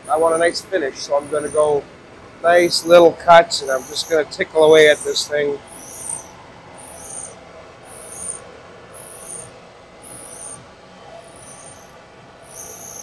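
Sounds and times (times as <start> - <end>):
grinding wheel high hiss: 0.0 - 13.0
machine humming: 0.0 - 13.0.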